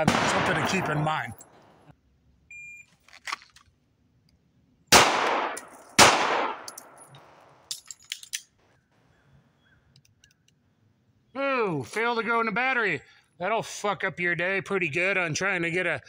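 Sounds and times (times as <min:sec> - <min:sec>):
pistol shots echoing: 0:00.0 - 0:01.6, 0:04.9 - 0:07.1
metallic clicks of pistol reload: 0:05.5 - 0:08.6.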